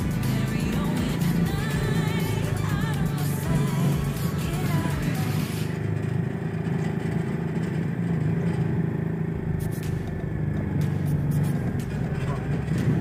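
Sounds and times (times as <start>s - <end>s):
road noise: 0.0s - 13.0s
vehicle engine cruising: 0.0s - 13.0s.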